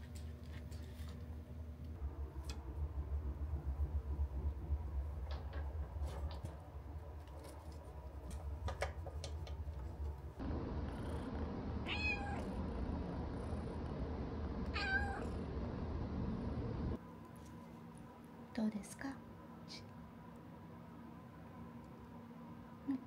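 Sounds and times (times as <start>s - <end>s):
kitten meowing: 11.9s - 12.5s, 14.7s - 15.3s.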